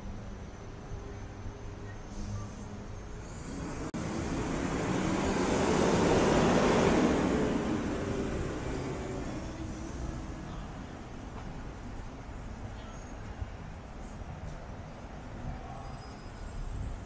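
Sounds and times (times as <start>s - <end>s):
vehicle passing by: 3.5s - 9.2s.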